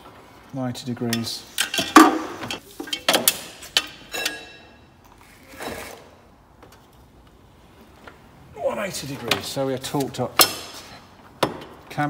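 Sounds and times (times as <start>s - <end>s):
metal hand tools clinking: 3.8s - 4.8s.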